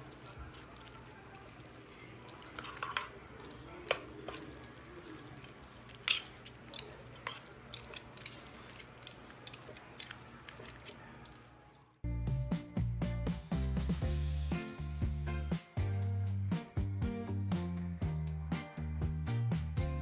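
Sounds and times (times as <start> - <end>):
wet squishing of pasta: 0.0 - 12.0
tongs clicking: 5.4 - 10.8.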